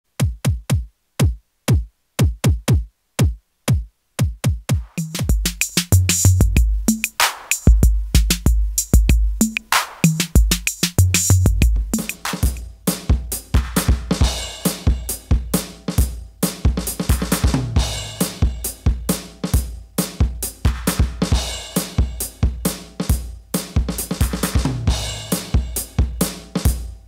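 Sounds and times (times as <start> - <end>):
hi-hat and snare beat: 0.2 - 27.0
synthesized kick drum hits: 4.4 - 7.0.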